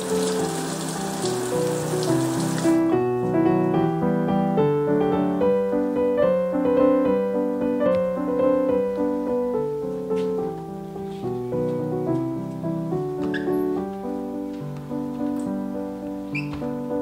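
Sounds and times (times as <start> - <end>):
scrubber rinsed under water: 0.0 - 2.8
tap water running into sink: 0.0 - 2.8.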